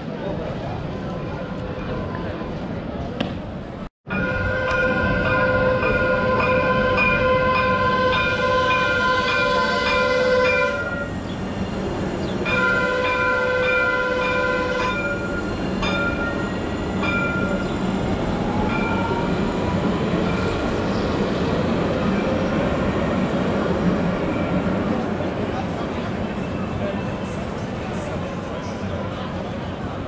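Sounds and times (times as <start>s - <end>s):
tram warning bell ringing: 4.1s - 11.4s, 12.4s - 18.0s, 18.6s - 19.3s.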